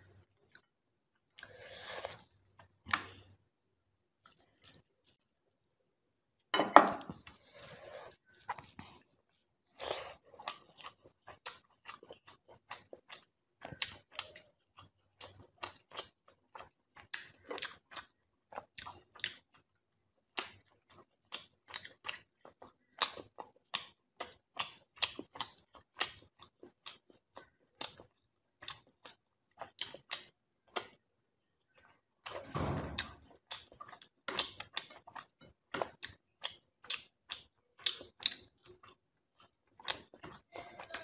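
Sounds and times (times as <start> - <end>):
chewing mouth clicks and smacks: 8.2 - 31.0, 33.0 - 41.0.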